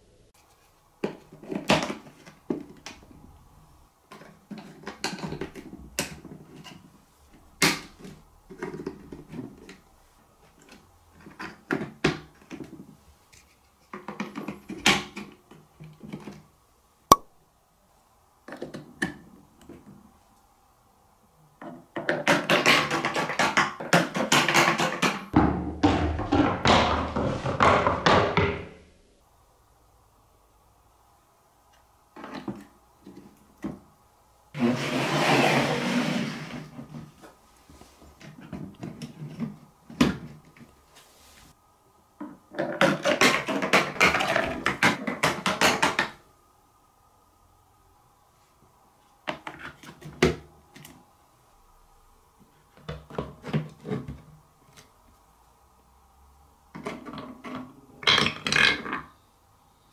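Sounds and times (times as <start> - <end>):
plastic parts knocking and clicking: 4.1 - 6.8, 10.6 - 12.9, 13.8 - 16.4, 21.6 - 28.7, 42.2 - 46.2, 56.7 - 59.1
ball rolling on plastic track: 42.2 - 46.2.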